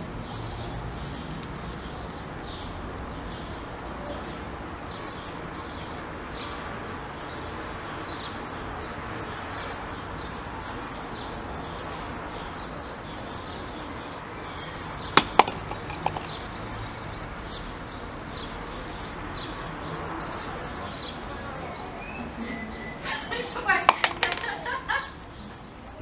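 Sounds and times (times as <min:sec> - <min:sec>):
flower pot knocking on tiled floor: 0:15.2 - 0:16.4, 0:23.9 - 0:24.6.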